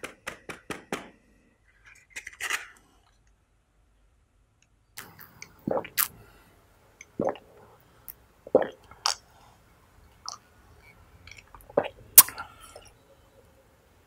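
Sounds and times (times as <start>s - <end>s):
person gulping a drink: 5.0s - 6.3s, 7.0s - 9.3s, 11.3s - 13.0s
wet mouth clicks and lip smacks: 10.2s - 10.4s, 11.3s - 12.9s.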